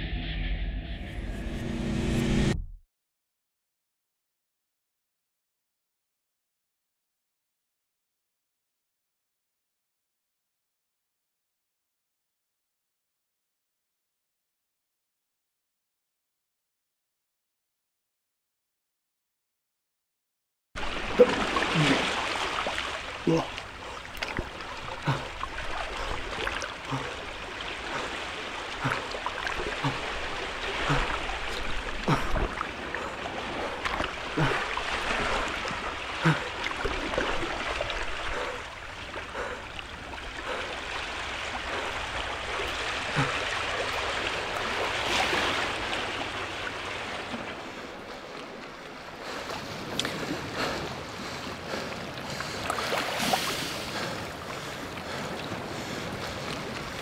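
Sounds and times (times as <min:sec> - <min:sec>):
waves washing: 0:20.8 - 0:57.0.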